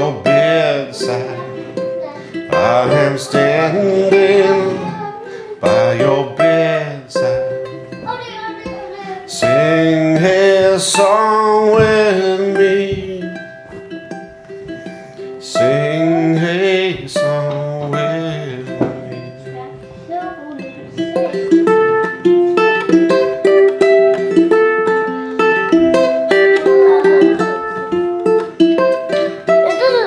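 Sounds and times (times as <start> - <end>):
person singing slow song: 0.0 - 8.0, 8.9 - 14.1, 14.7 - 22.2, 25.4 - 30.0
ukulele strummed and picked: 0.0 - 30.0.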